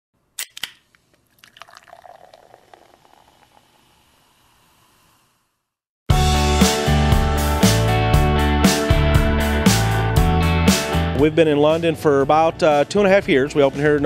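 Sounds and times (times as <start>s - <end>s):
beer pouring and fizzing: 1.2s - 5.0s
music: 6.1s - 14.0s.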